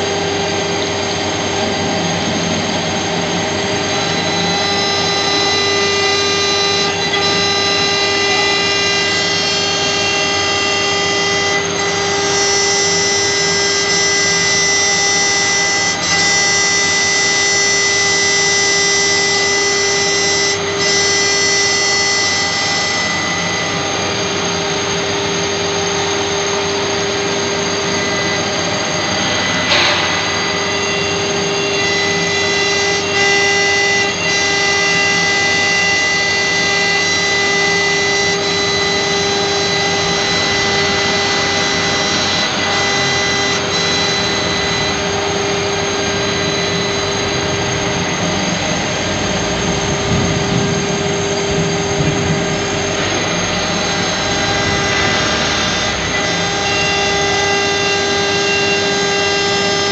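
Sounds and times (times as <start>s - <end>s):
bit grinding metal: 0.0s - 59.9s
router spindle whine: 0.0s - 59.9s.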